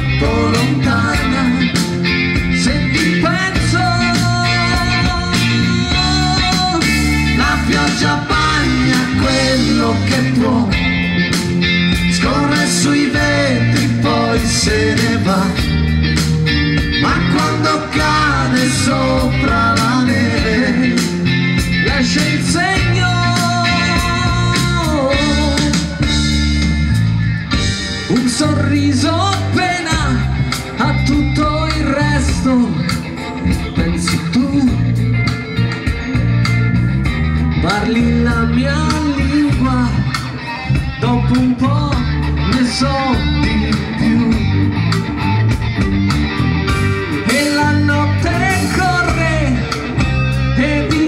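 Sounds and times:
live band playing pop-rock: 0.0s - 51.0s.

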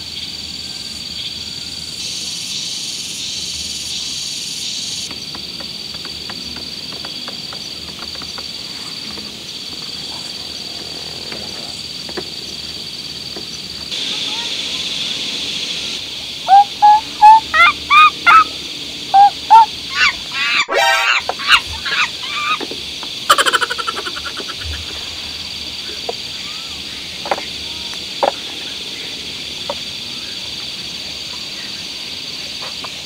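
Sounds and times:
insect drone: 0.0s - 33.0s
honking animal calls: 16.4s - 22.6s.

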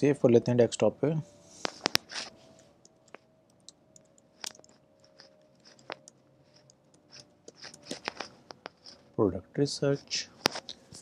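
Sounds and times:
typing on laptop keyboard: 2.8s - 9.0s.

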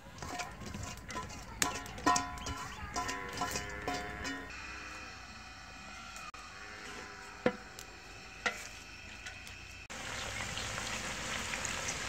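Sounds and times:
metal spoon knocking against pot: 0.2s - 4.5s
onions sizzling in oil: 6.8s - 12.0s.

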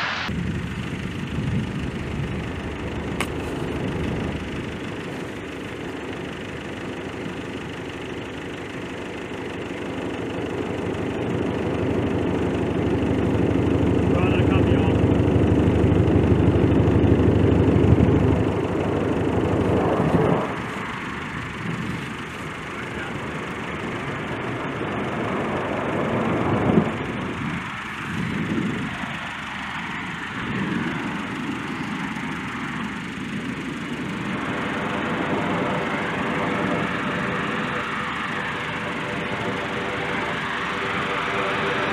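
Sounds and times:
soft rushing noise: 0.0s - 0.3s
turboprop engines running loud: 0.0s - 41.9s.

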